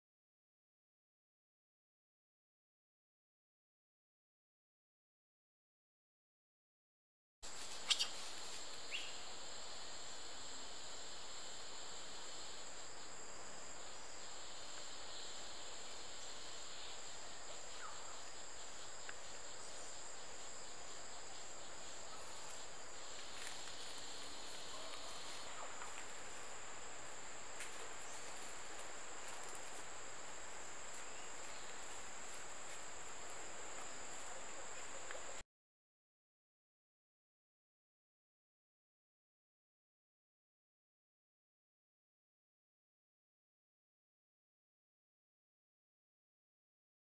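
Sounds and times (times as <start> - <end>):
high-pitched insect chorus: 7.4 - 35.4
lower insect buzz: 7.4 - 35.4.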